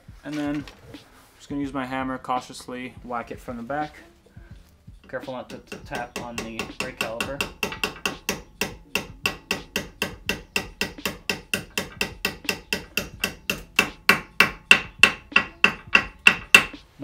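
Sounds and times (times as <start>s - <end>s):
hammer tapping metal pin: 5.4s - 16.8s.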